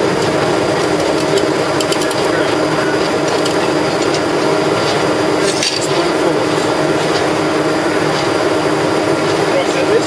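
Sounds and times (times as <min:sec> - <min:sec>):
pump mechanical drone: 0:00.0 - 0:10.0.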